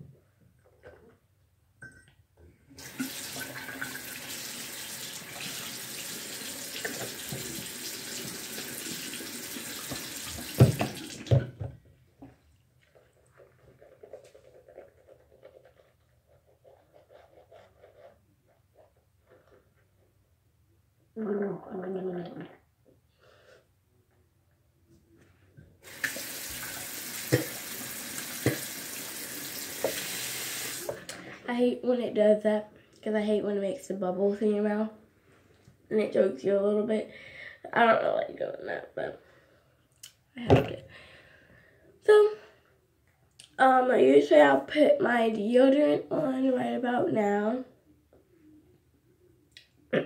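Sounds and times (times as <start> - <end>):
faucet running into sink: 2.8 - 11.5, 25.8 - 31.3.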